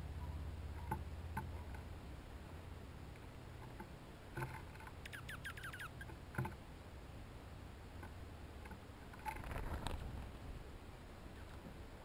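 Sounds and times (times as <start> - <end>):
songbird chirping: 0.0 - 9.5
rustle: 0.0 - 12.0.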